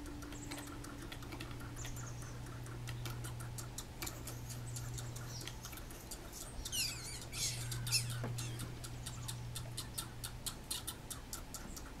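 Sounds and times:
squirrel clicking alarm calls: 0.0 - 12.0
squeaky falling chirps: 6.7 - 9.4.

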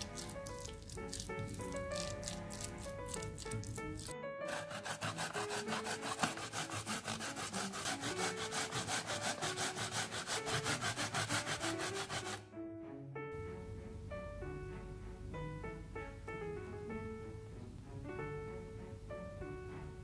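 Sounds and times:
potato grating rasps: 0.0 - 12.4.

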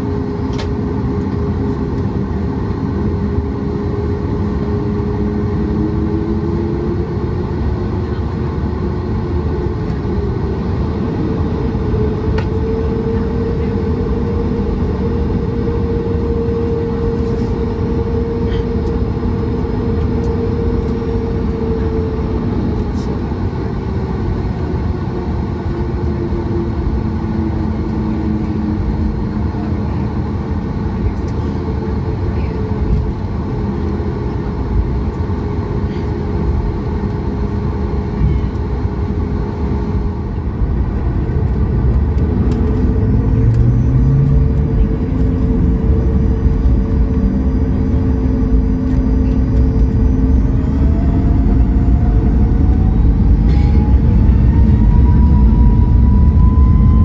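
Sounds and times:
jet engine rumble from cabin: 0.0 - 57.0.

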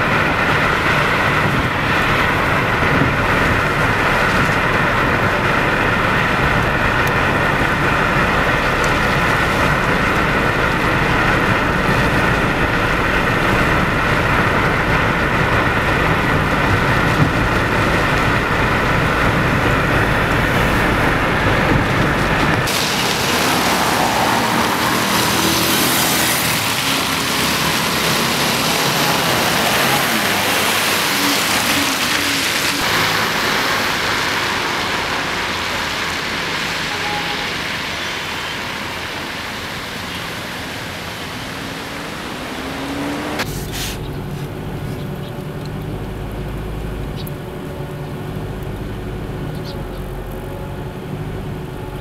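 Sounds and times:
dull low rumble: 0.0 - 23.4
road traffic passing cars: 0.0 - 52.0.

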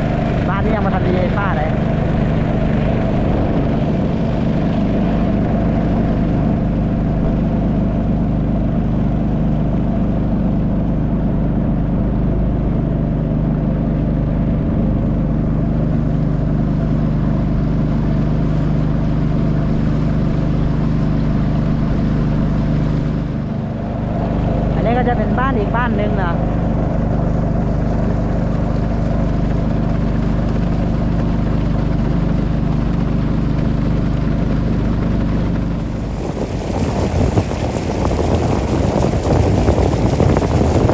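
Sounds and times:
boat engine droning: 0.0 - 40.9.

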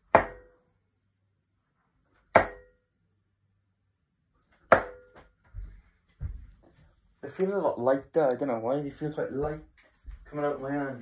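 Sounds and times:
darts thudding into dartboard: 0.1 - 0.5, 2.3 - 2.7, 4.6 - 5.2.

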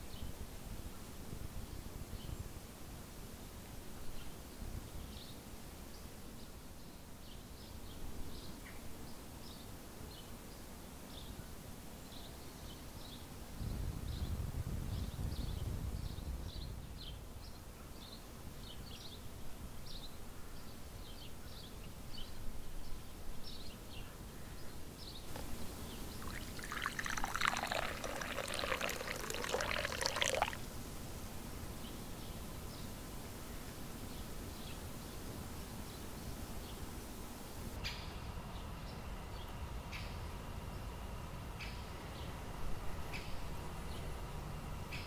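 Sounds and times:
tea pouring into cup: 25.3 - 30.6.

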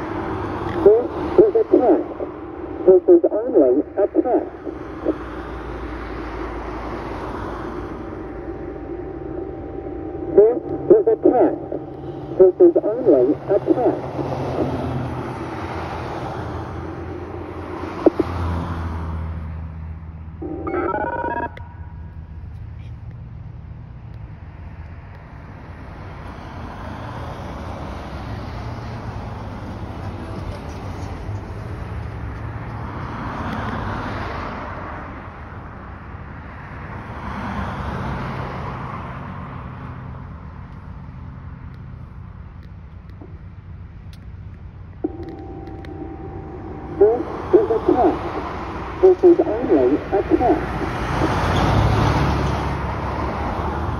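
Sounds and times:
low steady hum: 0.0 - 15.6, 20.4 - 22.5, 44.9 - 50.9
warning siren echoing: 0.0 - 19.0, 20.4 - 22.3, 45.0 - 52.2
electronic tones stepping in pitch: 6.4 - 14.8, 20.4 - 22.1, 45.0 - 51.4.

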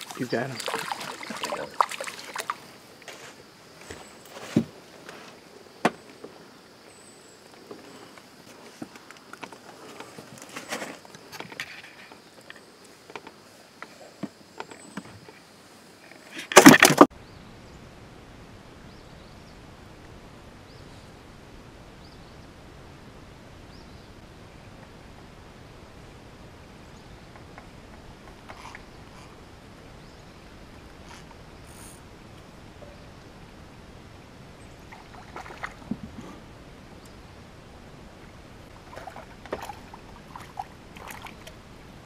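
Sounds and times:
high insect drone: 0.0 - 16.5.

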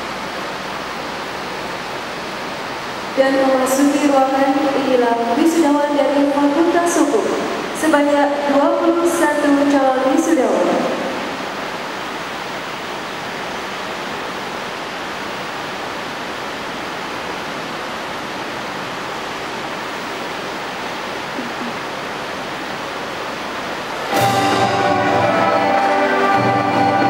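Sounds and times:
hall background hiss: 0.0 - 27.0.

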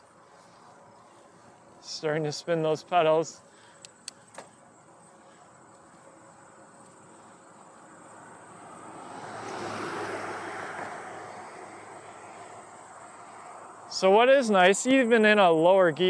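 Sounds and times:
car driving past: 7.4 - 13.8.

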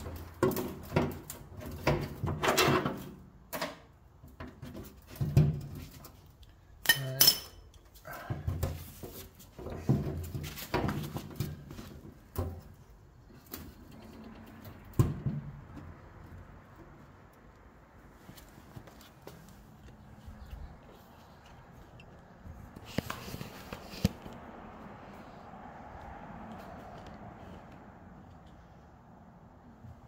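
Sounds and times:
metal knocks and clinks: 6.8 - 7.8.

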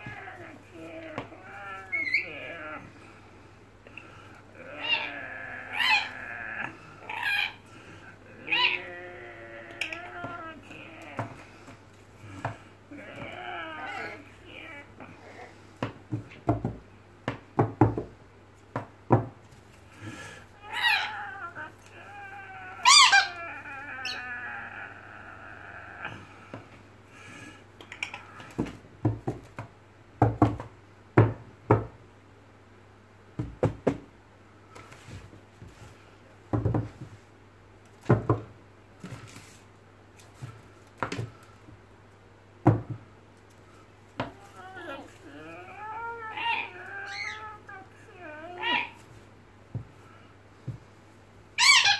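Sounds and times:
parrot calling and squawking: 0.0 - 2.8, 4.7 - 7.6, 20.6 - 24.4, 44.4 - 49.0, 51.6 - 51.9.

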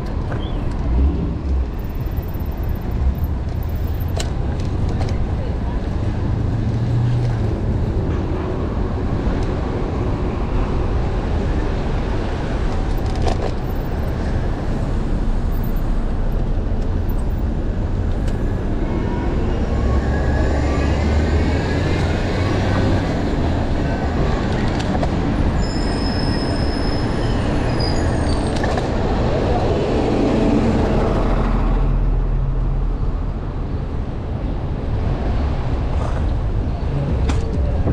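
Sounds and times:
bus engine rumble and whine: 0.0 - 37.9
cars running: 0.0 - 37.9
high-pitched brake squeal: 25.5 - 28.6.

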